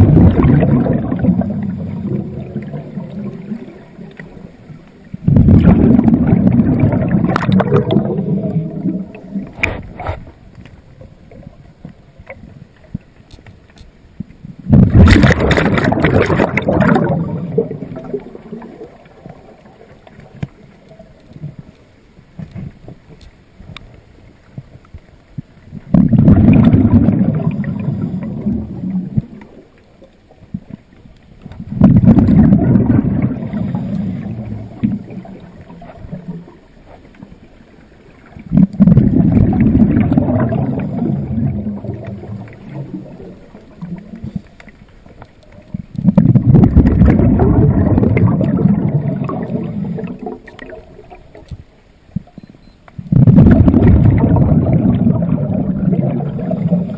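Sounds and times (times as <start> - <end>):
diver's exhaled air bubbling: 0.0 - 4.5, 5.1 - 10.4, 14.6 - 19.8, 25.8 - 29.6, 31.6 - 36.7, 38.2 - 44.6, 45.8 - 51.5, 53.0 - 56.9.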